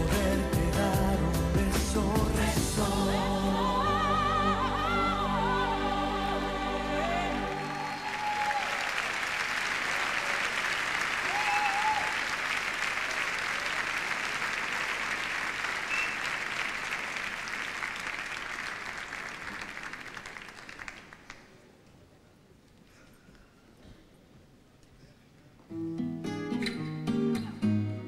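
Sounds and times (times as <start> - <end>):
audience applauding: 6.8 - 21.8.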